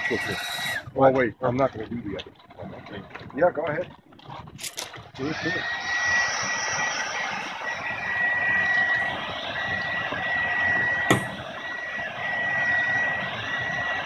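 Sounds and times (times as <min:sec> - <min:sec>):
hair dryer running: 0:05.2 - 0:14.0.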